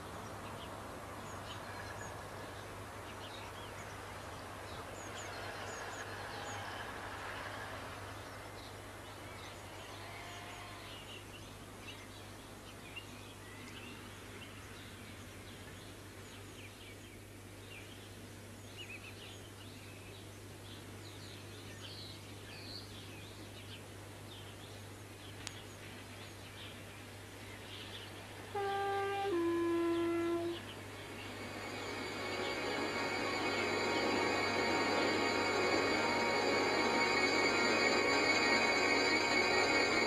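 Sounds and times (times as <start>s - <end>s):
music with held notes: 29.0s - 40.0s.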